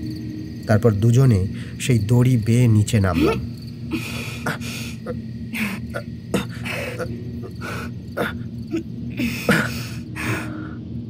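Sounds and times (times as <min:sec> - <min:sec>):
low ambient drone: 0:00.0 - 0:11.0
breaths and grunts of effort: 0:03.2 - 0:10.8.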